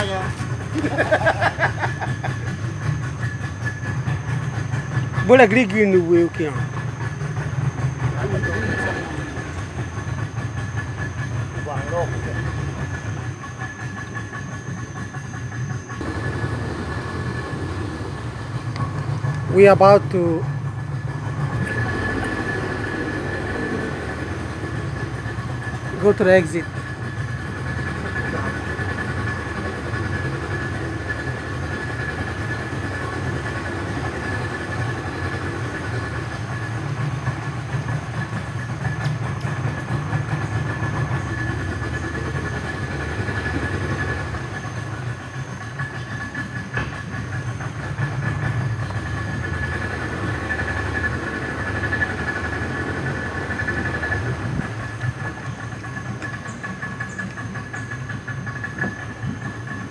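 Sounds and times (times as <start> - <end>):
outboard motor running: 0.0 - 59.9.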